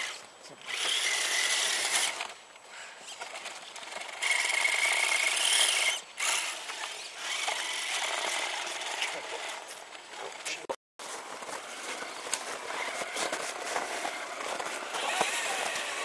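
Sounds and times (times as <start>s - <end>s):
electric motor and gears whining: 0.0s - 2.5s, 3.1s - 16.0s.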